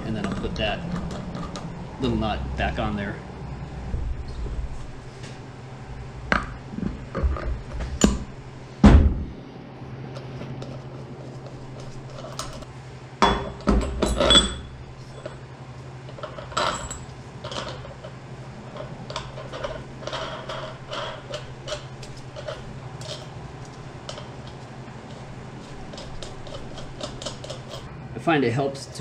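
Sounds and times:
steel parts clinking and clanking: 0.0 - 1.7, 11.7 - 15.4, 16.1 - 27.9
steady low hum: 0.0 - 29.0.

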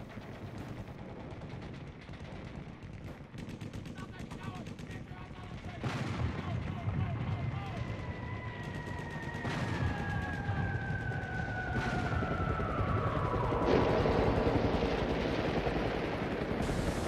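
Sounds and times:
rapid gunfire: 0.0 - 12.3.

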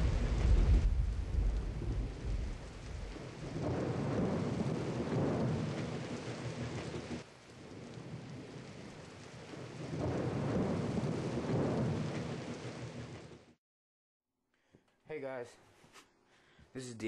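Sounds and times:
steady rain: 0.0 - 13.6
thunder rumbling: 0.0 - 13.6.

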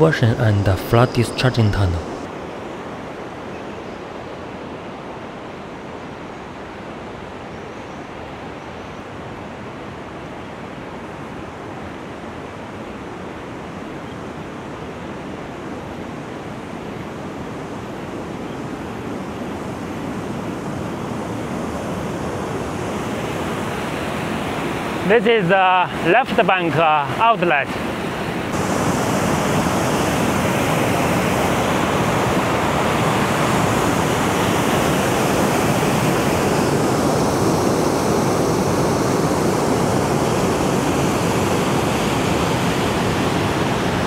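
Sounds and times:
river water rushing over rapids: 18.9 - 44.0.

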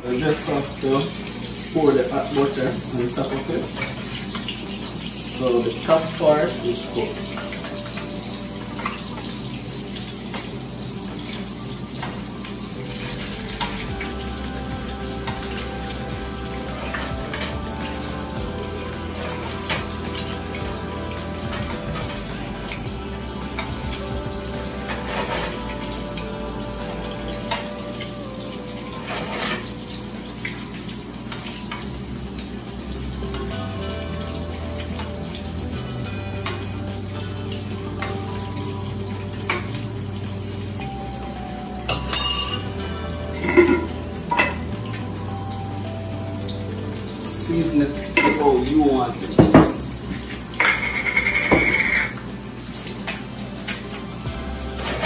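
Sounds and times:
butter sizzling in a frying pan: 0.0 - 55.0
metal spoon clinking on pan: 41.9 - 42.7.

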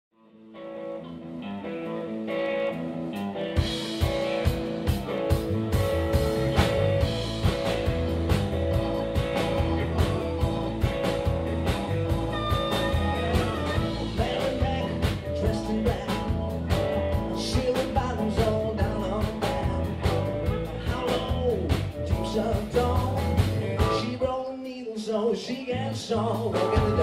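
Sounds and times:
electric guitar riff: 0.2 - 24.2
live blues band playing: 0.5 - 24.4, 25.1 - 27.0
drums with steady beat: 3.6 - 24.2, 26.3 - 27.0
harmonica: 8.8 - 14.9.

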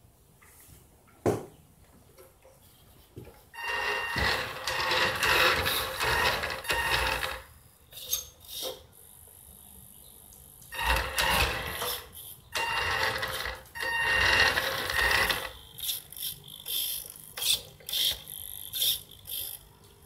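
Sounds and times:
model car motor whirring: 10.8 - 19.7.

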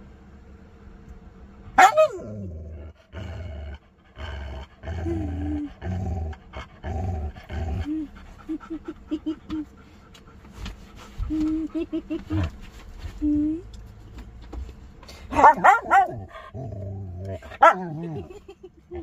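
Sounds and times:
husky vocalising: 15.3 - 19.0.

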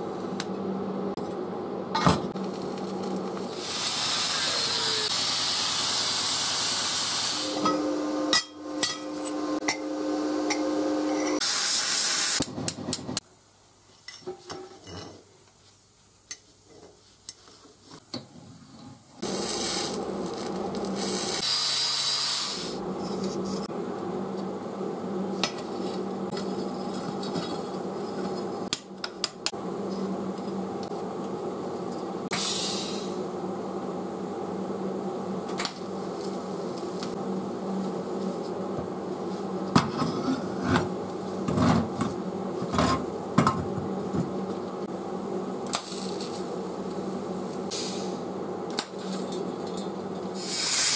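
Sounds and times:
welding arc hissing: 2.4 - 12.5, 19.2 - 23.7, 32.3 - 33.2, 47.7 - 48.3, 50.4 - 50.9.

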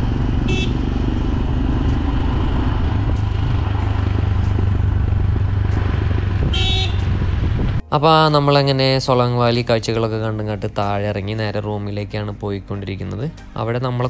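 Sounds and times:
motorcycle engine rumbling: 0.0 - 11.0
vehicle horn toot: 0.4 - 0.8, 6.4 - 7.2.

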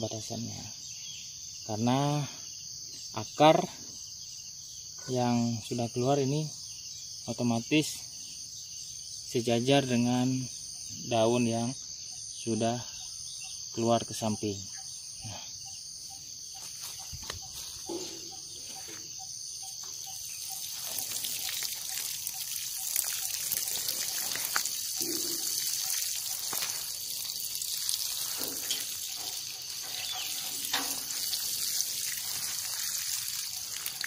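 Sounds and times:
watering can spraying water on soil: 16.5 - 34.0.

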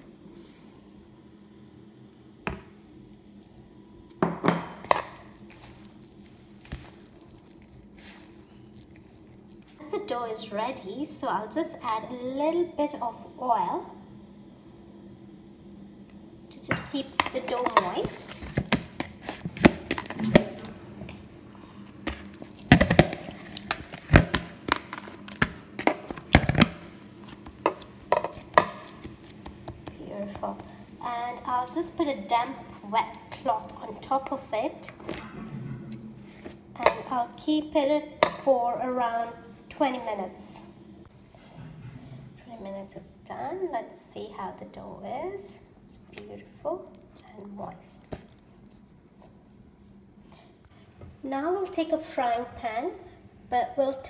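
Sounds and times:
hands kneading dough in bowl: 4.6 - 10.6, 16.6 - 21.2, 21.8 - 32.0.

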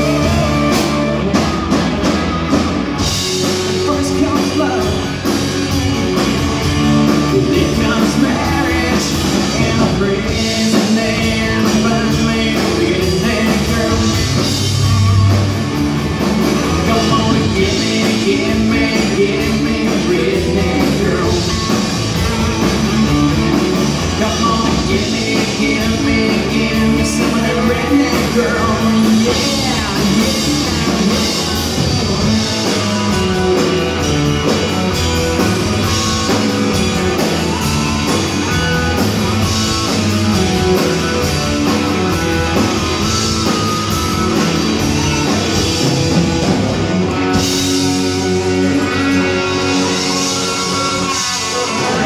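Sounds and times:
live country-rock band: 0.0 - 52.0.

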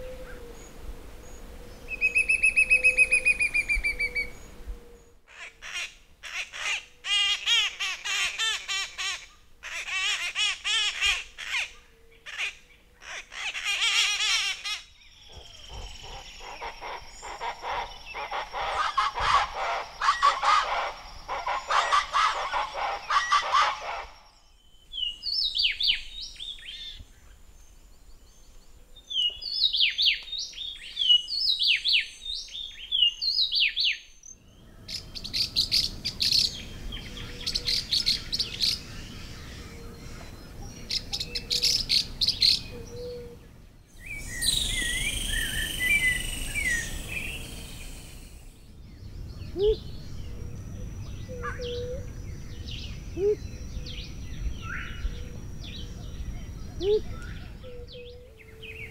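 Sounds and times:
loud bird duet: 1.9 - 4.6, 5.3 - 27.1, 29.2 - 58.9
squeaky bird calls: 2.0 - 4.3, 44.0 - 48.4
rapid high parrot calls: 15.8 - 24.3, 44.0 - 48.5
low bird hoot: 41.1 - 43.4, 49.5 - 49.9, 53.1 - 53.7, 56.7 - 58.9
short descending bird chirps: 44.0 - 48.6.

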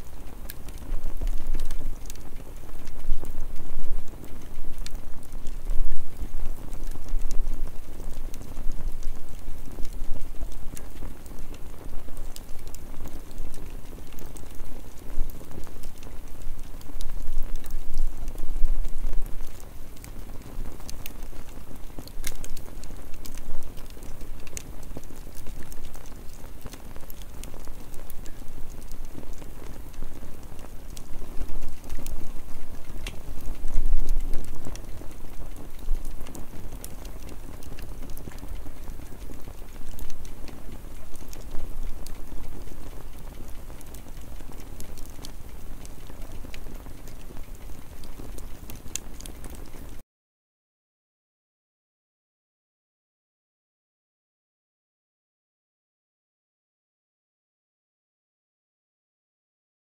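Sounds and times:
campfire crackling and popping: 0.0 - 50.0.

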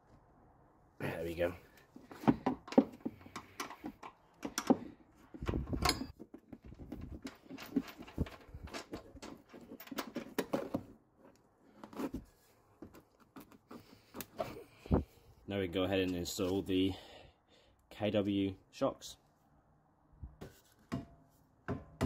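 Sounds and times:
metal tools knocking and clunking: 2.1 - 10.9.

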